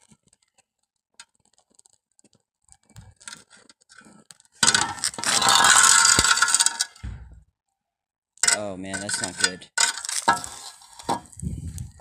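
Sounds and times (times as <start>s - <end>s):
faint scrapes and clicks: 0.0s - 6.5s, 8.4s - 12.0s
rough scraping across concrete: 3.1s - 7.0s, 8.4s - 12.0s.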